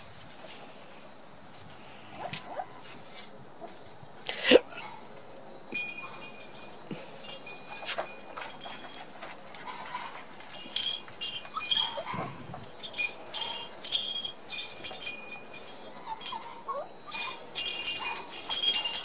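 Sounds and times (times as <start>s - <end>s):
puppy sounds: 2.1s - 3.0s, 11.3s - 13.8s, 15.6s - 19.0s
small bells jingling: 5.7s - 19.0s.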